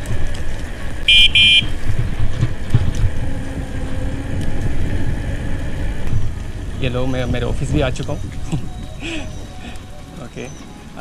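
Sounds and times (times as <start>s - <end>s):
wind rushing over microphone: 0.0s - 11.0s.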